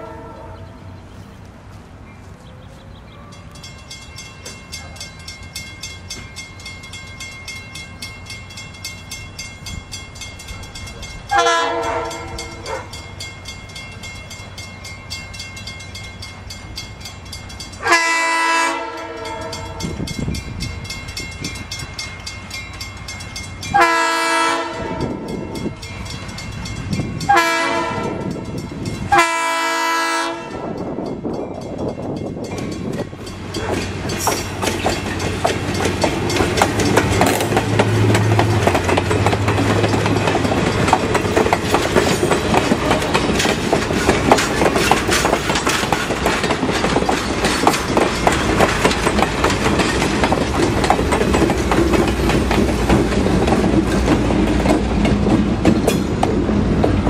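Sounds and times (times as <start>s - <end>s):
locomotive horn blasts: 0.0s - 0.8s, 11.3s - 13.0s, 17.8s - 20.0s, 23.7s - 25.3s, 27.3s - 28.4s, 29.1s - 30.8s
train engine and wheels rumble: 0.0s - 57.0s.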